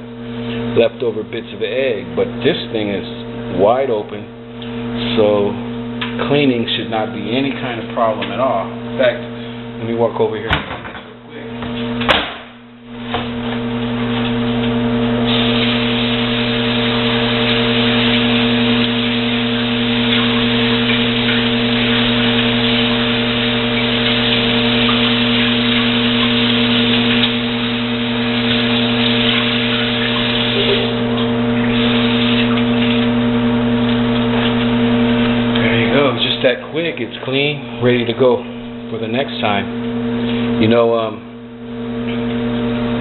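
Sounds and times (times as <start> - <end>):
microwave oven humming: 0.0 - 43.0
tap water running: 12.9 - 40.9.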